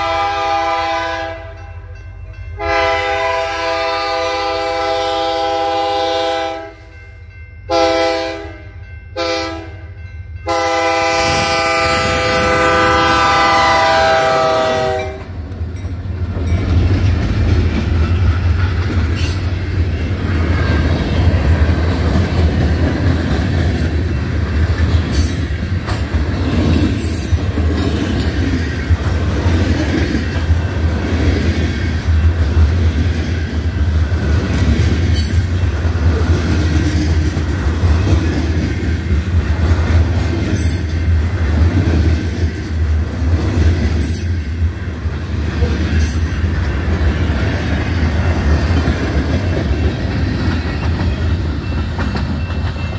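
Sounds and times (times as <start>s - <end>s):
locomotive air horn blasts: 0.0s - 1.6s, 2.6s - 6.9s, 7.7s - 9.9s, 10.5s - 15.3s
train wheels clicking over rail joints: 15.1s - 52.9s.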